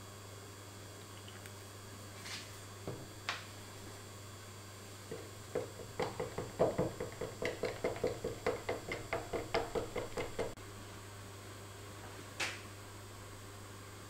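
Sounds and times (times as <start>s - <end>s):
stick knocking plastic jug: 5.1s - 10.6s.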